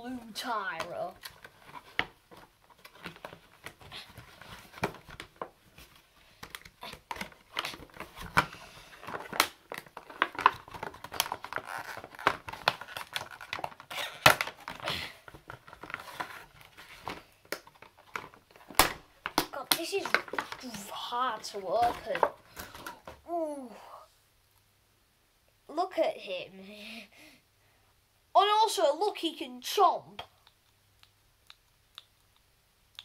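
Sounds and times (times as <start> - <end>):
plastic packaging crinkling and tearing: 0.7 - 23.1.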